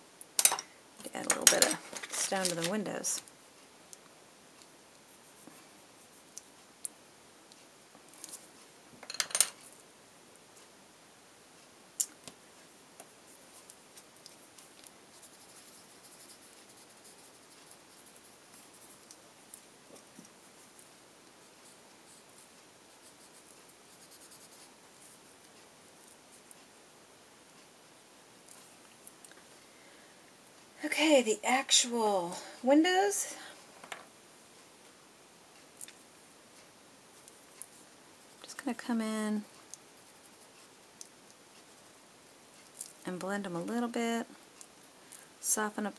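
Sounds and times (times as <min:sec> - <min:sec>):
pencil strokes on paper: 0:04.9 - 0:06.4, 0:12.6 - 0:26.7, 0:36.5 - 0:42.0
pencil scratching on paper: 0:14.3 - 0:19.1, 0:21.5 - 0:25.2.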